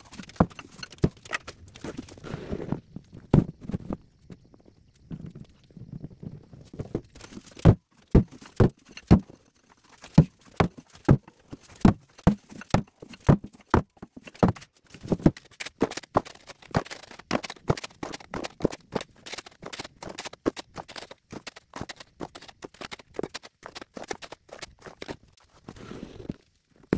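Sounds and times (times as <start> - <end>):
wheelbarrow clunking over stony ground: 0.0 - 2.8, 6.7 - 25.1.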